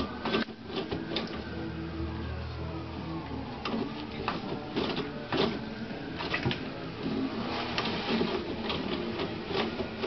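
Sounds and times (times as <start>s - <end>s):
toilet paper roll rattling: 3.6s - 10.0s.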